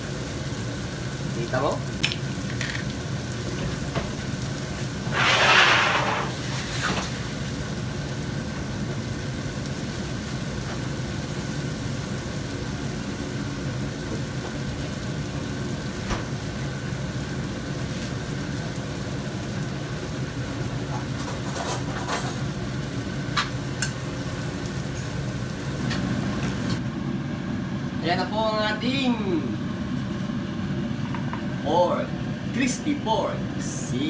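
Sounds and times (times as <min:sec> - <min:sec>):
meat sizzling on hot plate: 0:00.0 - 0:26.8.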